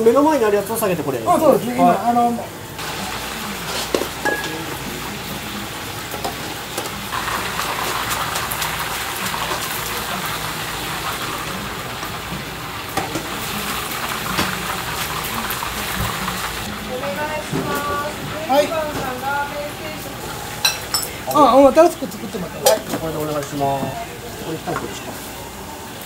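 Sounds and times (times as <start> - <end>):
sizzling bubbling hiss: 0.0 - 26.0
utensils clinking against pot: 3.6 - 4.9, 20.6 - 23.9.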